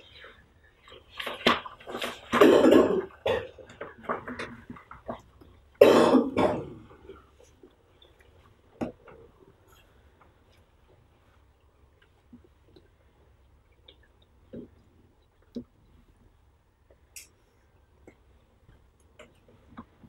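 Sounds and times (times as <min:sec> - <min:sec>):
person coughing: 0:05.8 - 0:06.8.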